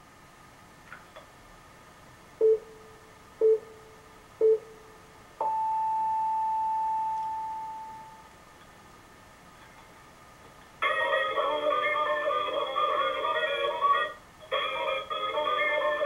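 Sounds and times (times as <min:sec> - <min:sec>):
electronic time signal beeps: 0:02.4 - 0:03.8, 0:04.4 - 0:04.8, 0:05.4 - 0:08.3.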